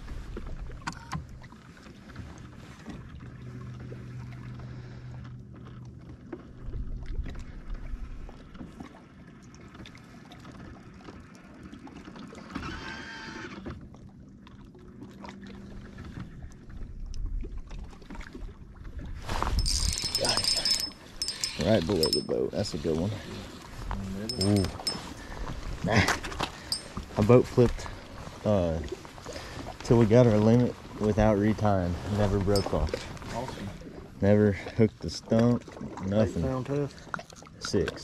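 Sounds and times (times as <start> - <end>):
electric boat motor humming: 12.6 - 13.6, 19.6 - 23.7.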